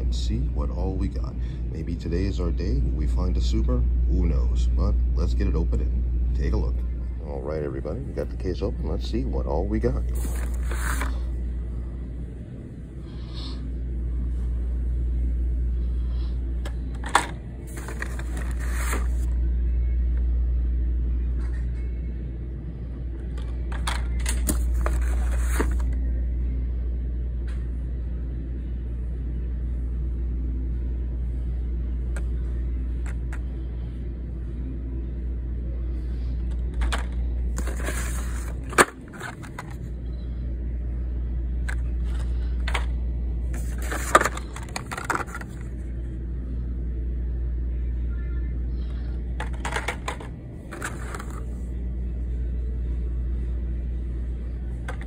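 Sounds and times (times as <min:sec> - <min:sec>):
steady low rumble: 0:00.0 - 0:49.4
plastic packs scraping and rustling: 0:10.1 - 0:11.3, 0:17.7 - 0:19.3, 0:24.6 - 0:25.9, 0:37.6 - 0:39.8, 0:43.6 - 0:45.6, 0:50.7 - 0:51.4.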